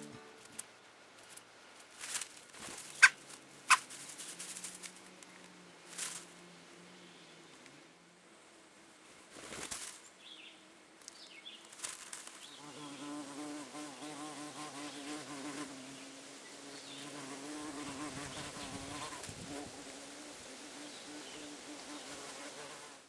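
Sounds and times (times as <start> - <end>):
fly buzzing: 11.7 - 23.0.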